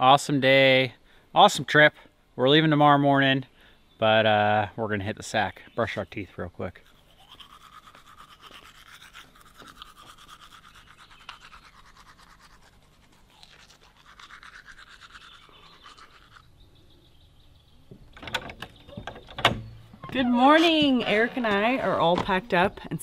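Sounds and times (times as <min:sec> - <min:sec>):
toothbrush scrubbing teeth: 0:06.7 - 0:16.5.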